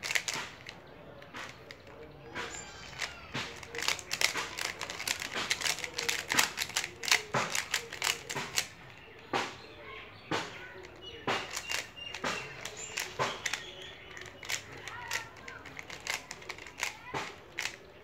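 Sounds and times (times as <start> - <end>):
plastic puzzle clicking: 0.0 - 9.3, 10.4 - 18.0.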